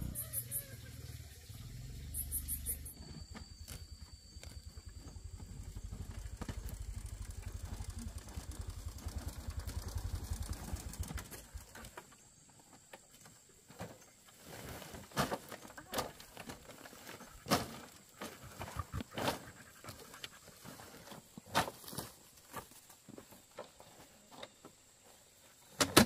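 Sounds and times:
small motorbike engine puttering: 5.0s - 12.2s
sacks rustling: 14.3s - 18.6s.

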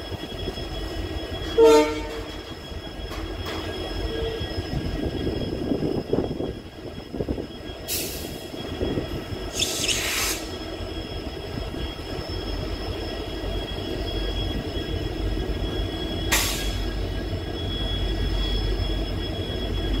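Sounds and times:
diesel locomotive rumble: 0.0s - 20.0s
steady high whines: 0.0s - 20.0s
air hissing: 9.5s - 10.6s.

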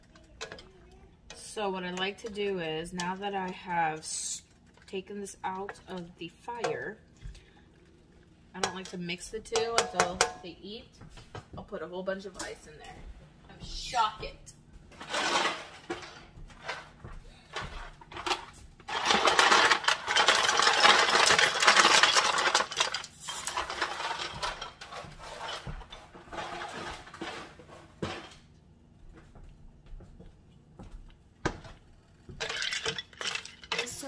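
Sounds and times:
ice cubes clattering into a pot: 18.2s - 24.9s, 32.4s - 34.0s
ice clinking against a pot: 32.4s - 34.0s.

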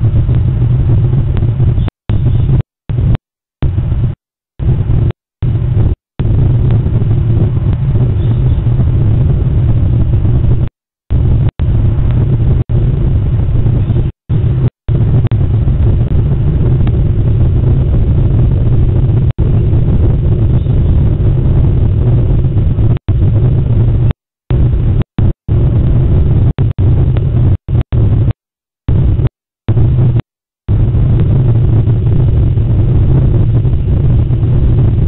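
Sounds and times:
loud low rumble: 0.0s - 35.0s.

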